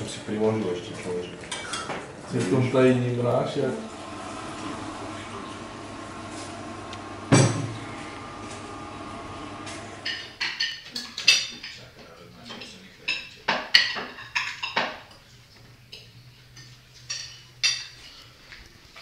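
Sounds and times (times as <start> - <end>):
plates and cutlery clinking: 0.5 - 2.7, 7.3 - 7.8, 9.7 - 19.0.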